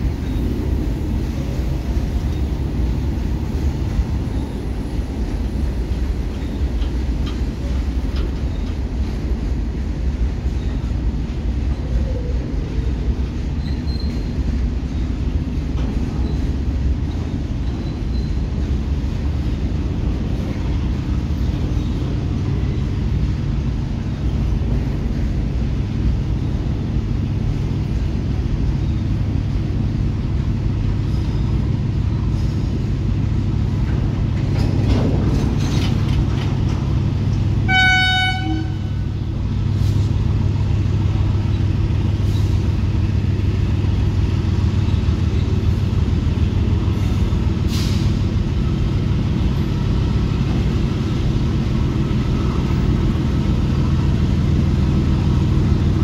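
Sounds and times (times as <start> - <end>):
train wheels rumbling on rails: 0.0 - 56.0
train horn toot: 37.6 - 39.2.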